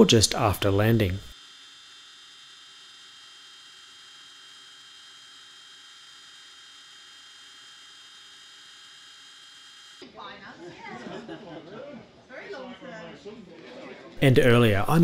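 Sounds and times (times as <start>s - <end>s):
faint hum and hiss: 0.0s - 1.4s.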